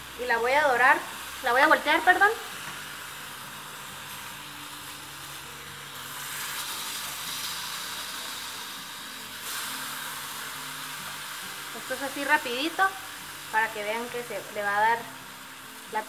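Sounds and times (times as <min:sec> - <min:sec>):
tacos sizzling on a hot griddle: 0:00.0 - 0:16.0.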